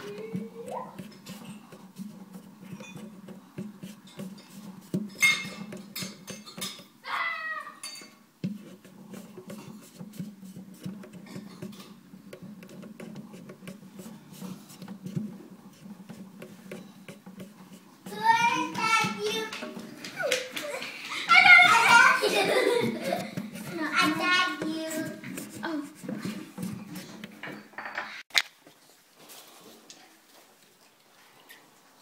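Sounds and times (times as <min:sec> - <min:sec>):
fingers rubbing rubber splash guard: 0:00.0 - 0:06.9, 0:08.4 - 0:20.4, 0:21.4 - 0:27.4.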